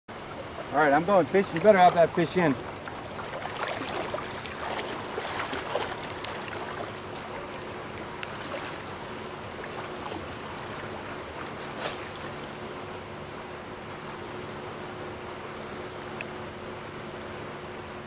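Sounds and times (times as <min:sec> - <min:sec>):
ocean water lapping: 0:00.2 - 0:12.8
water splashes: 0:00.3 - 0:12.6.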